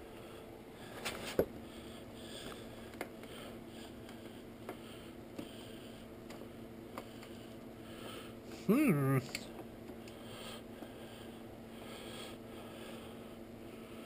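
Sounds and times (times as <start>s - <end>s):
breathing close to microphone: 0.2s - 8.4s, 10.1s - 14.0s.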